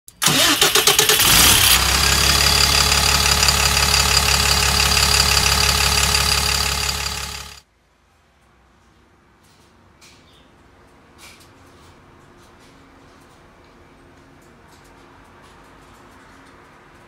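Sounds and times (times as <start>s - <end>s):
engine starting and idling: 0.1s - 7.6s.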